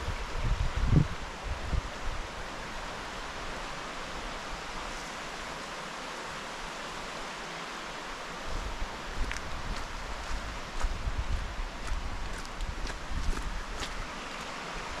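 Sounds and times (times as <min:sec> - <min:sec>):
outdoor rushing hiss: 0:00.0 - 0:11.8
soft footsteps on trail: 0:08.5 - 0:15.0.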